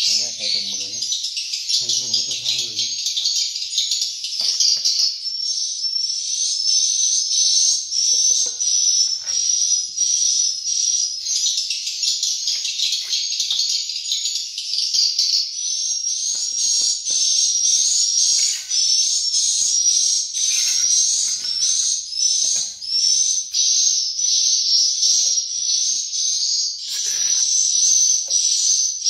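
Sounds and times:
swiftlets twittering: 0.0 - 3.0.

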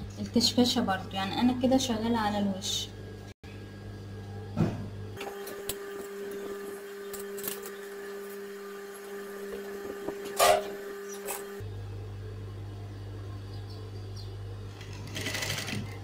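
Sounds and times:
sewing machine running: 14.8 - 16.0.

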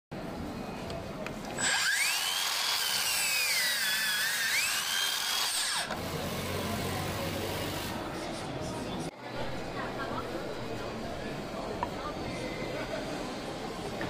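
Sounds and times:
mitre saw whine: 1.6 - 8.0.

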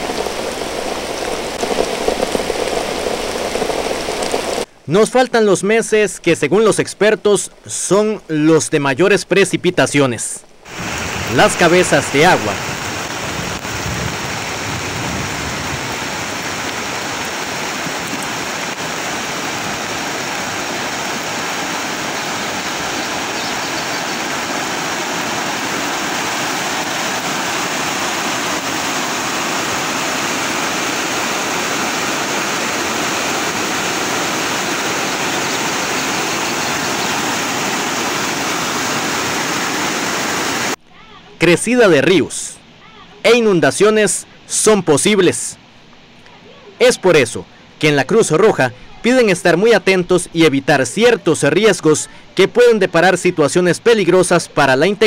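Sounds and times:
river rushing over rocks: 0.0 - 4.7, 10.6 - 40.8.

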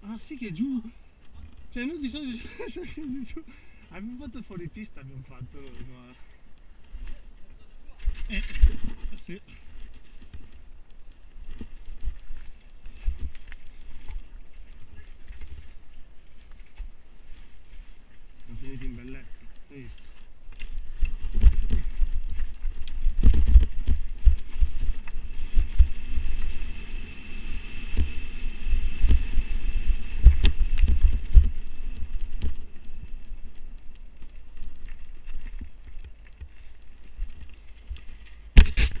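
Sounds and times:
bike thumping over dirt trail: 38.5 - 39.0.

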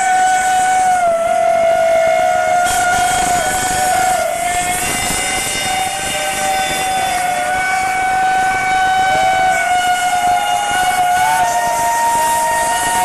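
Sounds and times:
whistle sliding up in pitch: 0.0 - 8.2
steam locomotives passing: 0.0 - 13.0
steam whistle long note: 0.0 - 13.0.

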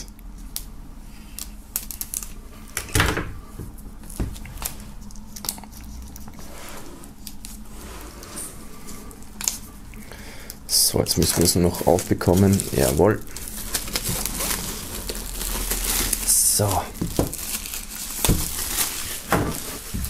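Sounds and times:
plastic crinkling: 0.4 - 2.4, 10.8 - 20.0
blade slitting plastic film: 11.2 - 20.0.

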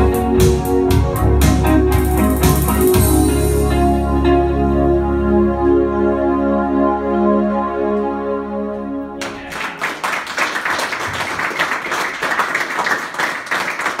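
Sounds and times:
electronic keyboard chord: 0.0 - 9.2
audience applause: 9.2 - 14.0.

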